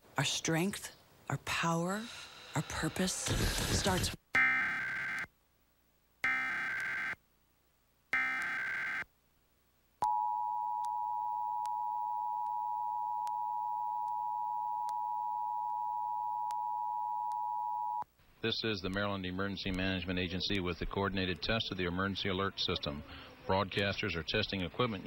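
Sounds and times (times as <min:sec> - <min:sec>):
two-tone attention signal: 0:08.2 - 0:09.0.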